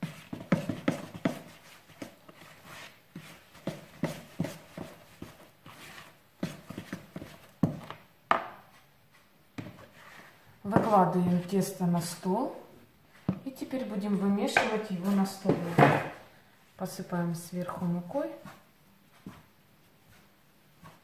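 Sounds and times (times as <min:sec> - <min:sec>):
hand kneading dough in bowl: 0:00.0 - 0:12.2, 0:17.6 - 0:21.0.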